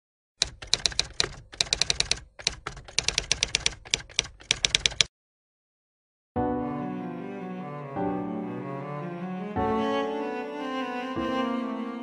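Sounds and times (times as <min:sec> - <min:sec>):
typewriter keys clacking: 0:00.4 - 0:05.1.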